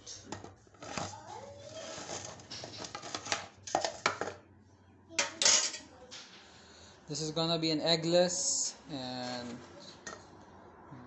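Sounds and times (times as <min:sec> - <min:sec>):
metal bowls clinking: 0:05.2 - 0:05.8.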